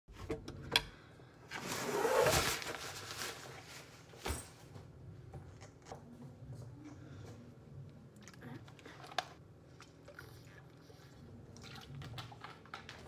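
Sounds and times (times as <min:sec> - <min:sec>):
rustling handling noise: 0:01.5 - 0:04.9.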